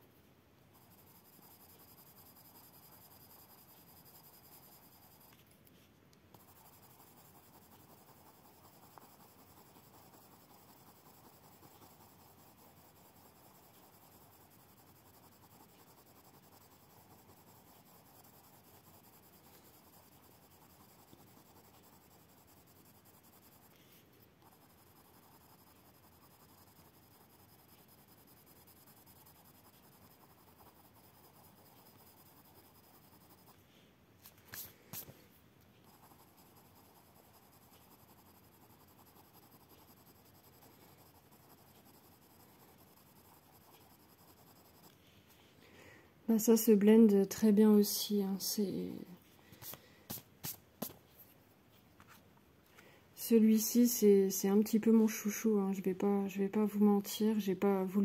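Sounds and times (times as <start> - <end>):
wax stick rubbing on paper: 3.0 - 28.3.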